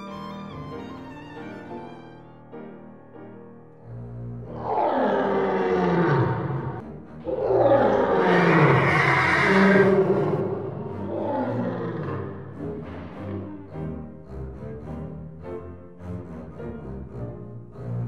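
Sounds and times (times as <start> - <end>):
animal roars sliding down: 4.5 - 12.2.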